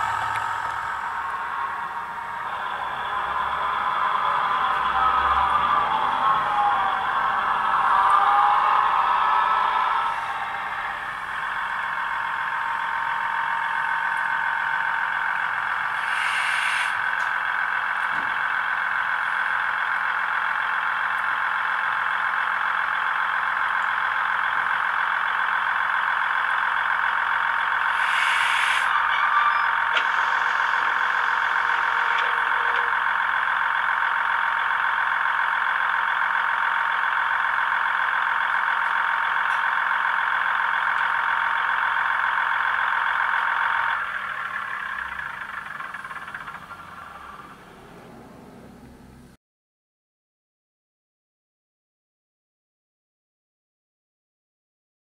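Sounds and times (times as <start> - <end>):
diesel engine through small speaker: 0.0 - 49.4
short hisses: 16.0 - 17.0, 27.9 - 28.9.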